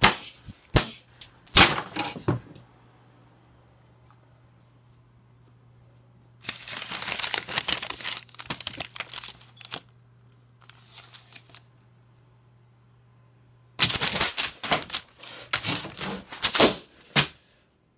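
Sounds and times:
paper crumpling and tearing: 6.4 - 9.9, 10.6 - 11.7, 13.8 - 16.8.

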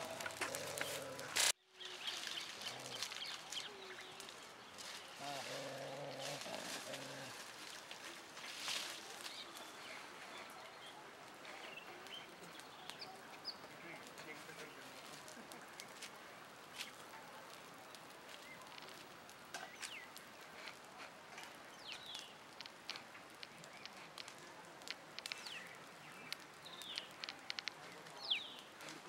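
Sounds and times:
palm fronds crackling in fire: 0.0 - 29.0
sharp pops of fire: 21.4 - 29.0.

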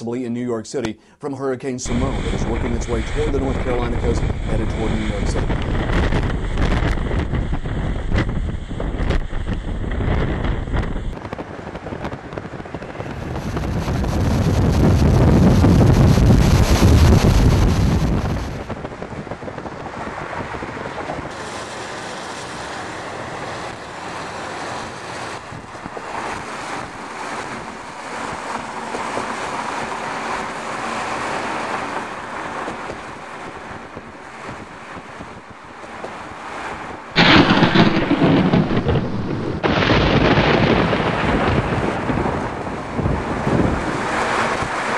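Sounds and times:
deep rumbling: 1.8 - 21.3, 37.0 - 44.1
storm wind blowing: 1.8 - 44.9
thunder crash: 1.9 - 21.4, 37.1 - 44.6
rain: 1.9 - 44.9.

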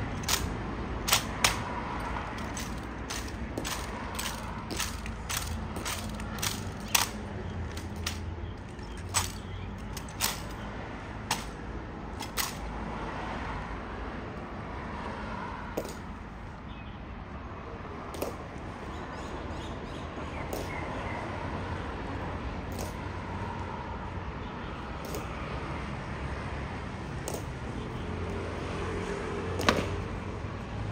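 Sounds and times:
steady background noise: 0.0 - 30.9
sharp clacks: 0.1 - 10.6, 11.2 - 11.6, 12.2 - 12.7.

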